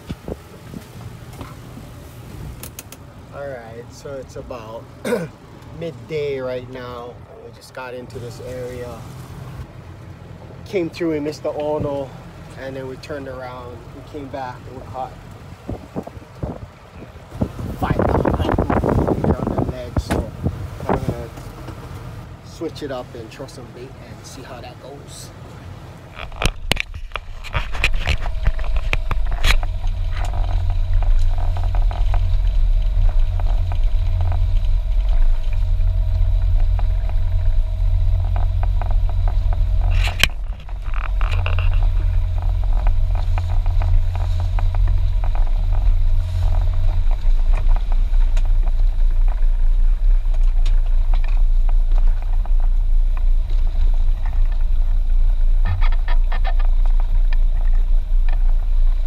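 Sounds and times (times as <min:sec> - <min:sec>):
boat engine rumbling: 0:00.0 - 0:59.0.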